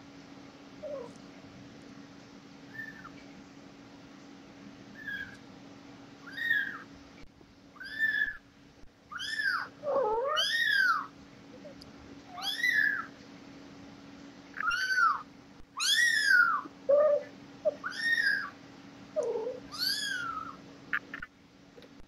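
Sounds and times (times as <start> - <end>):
kittens mewing: 0.8 - 1.2, 2.7 - 3.2, 5.0 - 5.4, 6.2 - 6.9, 7.8 - 8.4, 9.1 - 13.2, 14.6 - 18.6, 19.2 - 21.3.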